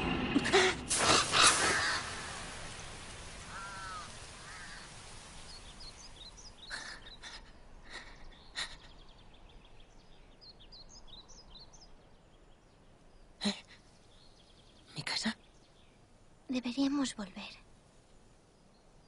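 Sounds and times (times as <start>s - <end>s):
small birds chirping: 0.5s - 19.0s
crow cawing: 0.9s - 5.5s.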